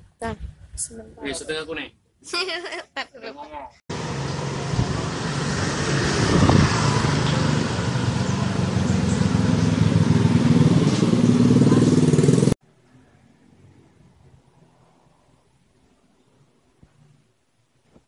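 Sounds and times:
loud engine running: 0:03.9 - 0:12.6.

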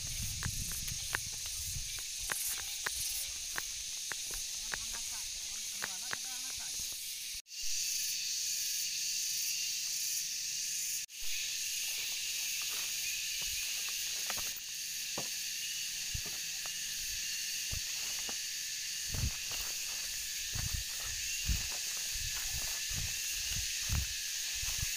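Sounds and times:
insect chorus: 0:00.0 - 0:24.9
footsteps on leaf litter: 0:11.8 - 0:14.7, 0:15.9 - 0:24.9.

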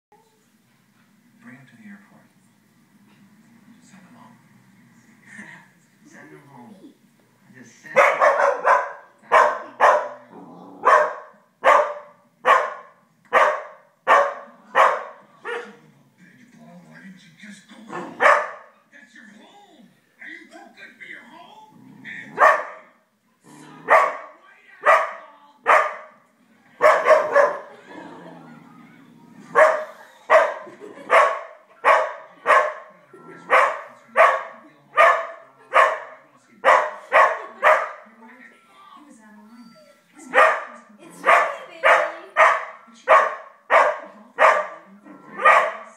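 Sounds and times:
puppy barking: 0:08.0 - 0:15.8, 0:18.0 - 0:18.7, 0:22.4 - 0:23.0, 0:23.8 - 0:26.2, 0:26.8 - 0:27.7, 0:29.5 - 0:32.9, 0:33.5 - 0:38.0, 0:40.2 - 0:45.9.

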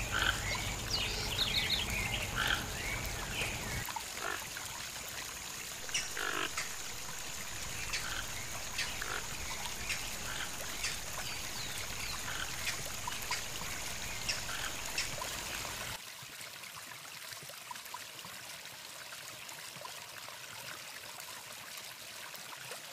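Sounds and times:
toucans croaking grunts: 0:00.0 - 0:00.6, 0:02.2 - 0:02.9, 0:05.8 - 0:15.2.

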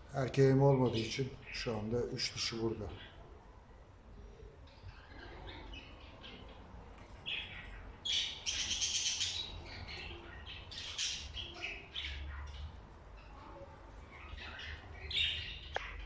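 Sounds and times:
budgerigars chattering and chirping: 0:07.2 - 0:12.8.

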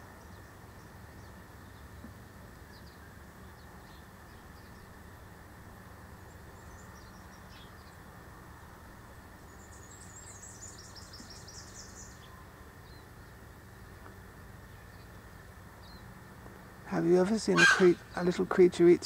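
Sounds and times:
low background hum: 0:00.0 - 0:19.0
high-pitched bird calls: 0:17.5 - 0:18.2.

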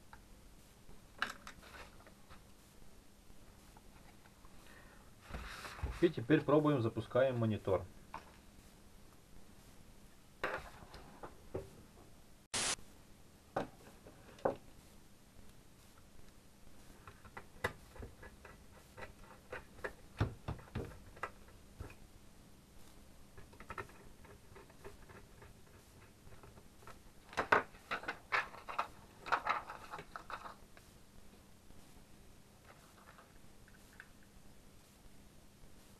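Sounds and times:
short hiss: 0:12.5 - 0:12.8.

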